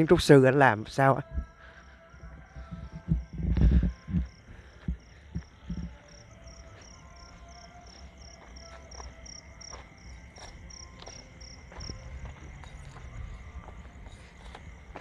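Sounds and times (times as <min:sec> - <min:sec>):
cricket chirping: 0:00.0 - 0:15.0.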